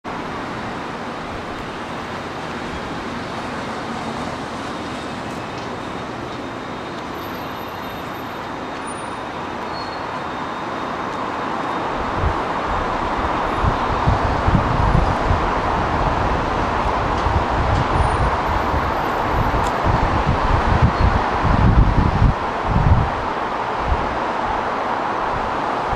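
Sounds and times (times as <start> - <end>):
distant road traffic hum: 0.1 - 25.9
wind rumble on microphone: 11.9 - 25.9.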